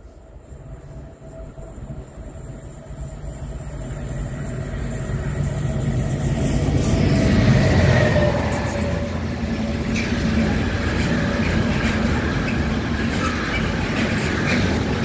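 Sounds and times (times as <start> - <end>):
diesel locomotive engine rumble: 0.0 - 15.0.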